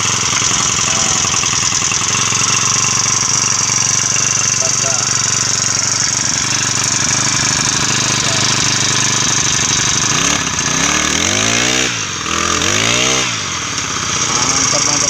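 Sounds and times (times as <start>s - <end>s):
brush cutter engine idling and revving: 0.0s - 15.0s.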